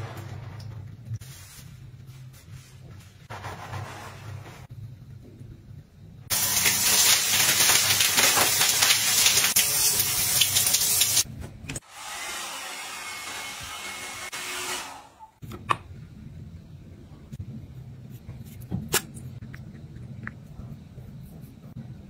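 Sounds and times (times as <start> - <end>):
shower running: 6.3 - 11.3
hair dryer blowing: 11.8 - 15.1.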